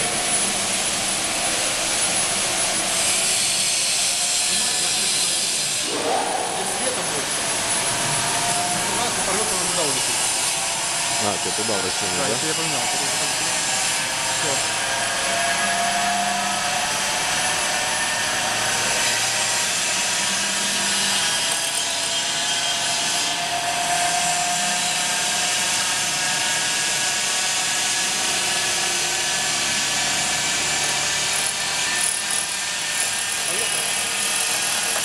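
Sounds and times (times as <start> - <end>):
band-knife cutting machine running: 0.0 - 20.1, 27.6 - 35.0.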